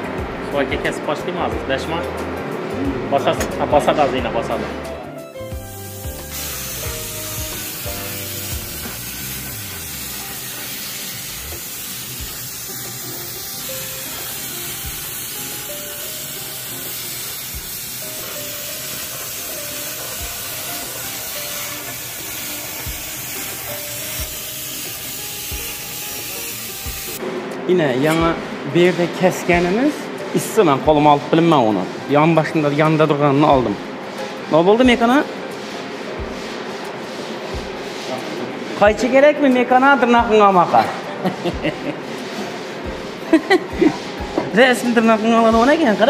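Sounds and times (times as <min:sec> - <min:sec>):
faint music: 0:00.0 - 0:46.0
plasma cutter hissing: 0:05.6 - 0:27.2.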